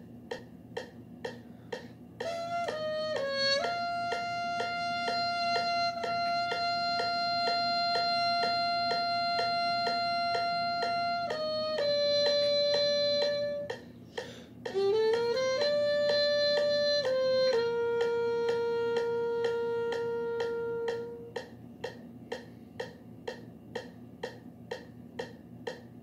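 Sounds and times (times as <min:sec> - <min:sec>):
steady clicking: 0:00.2 - 0:15.8, 0:17.0 - 0:26.0
solo trumpet: 0:02.2 - 0:13.8, 0:14.7 - 0:21.4.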